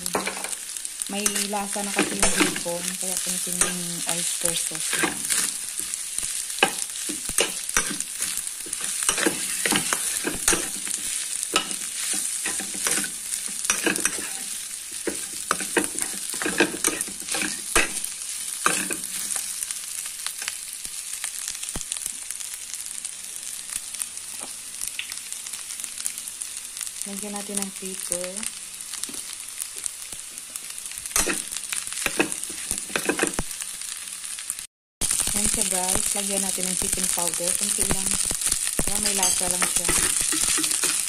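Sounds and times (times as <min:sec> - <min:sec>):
rice sizzling in a frying pan: 0:00.0 - 0:41.0
metal spatula scraping a pan: 0:00.1 - 0:19.5, 0:31.2 - 0:33.4, 0:39.0 - 0:41.0.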